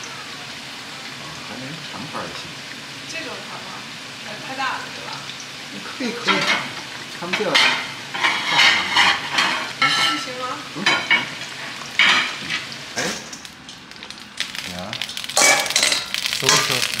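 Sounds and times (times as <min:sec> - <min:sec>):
food deep-frying in hot oil: 0:00.0 - 0:17.0.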